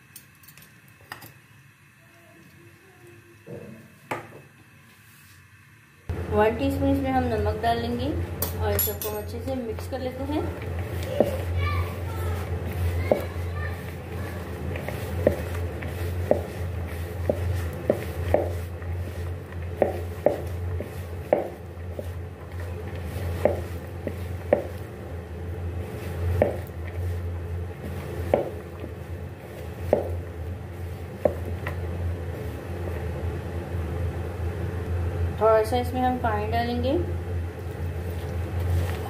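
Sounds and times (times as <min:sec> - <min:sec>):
steady low hum: 0:00.0 - 0:39.0
potatoes tossed by hand in bowl: 0:09.3 - 0:32.8, 0:37.7 - 0:39.0.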